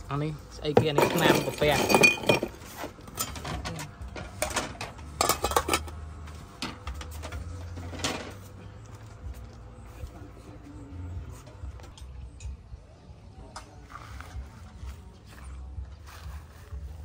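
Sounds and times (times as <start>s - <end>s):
low steady hum: 0.0s - 17.0s
cutlery and dishes clinking: 0.8s - 6.0s.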